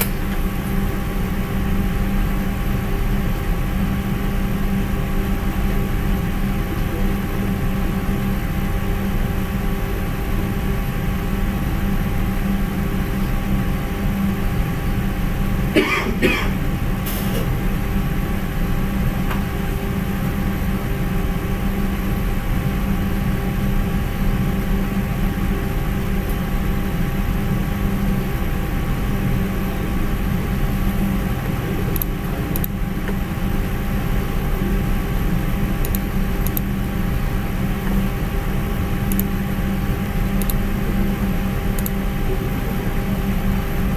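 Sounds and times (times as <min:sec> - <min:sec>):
low hum and hiss: 0:00.0 - 0:43.9
cough-like throat sound: 0:15.7 - 0:17.5
faint clicks: 0:39.1 - 0:39.3, 0:40.4 - 0:40.6, 0:41.8 - 0:42.0.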